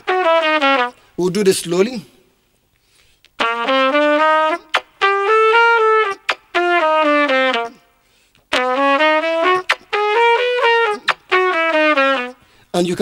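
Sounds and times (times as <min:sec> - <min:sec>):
trumpet playing slow notes: 0:00.0 - 0:01.1, 0:03.4 - 0:07.9, 0:08.5 - 0:12.6.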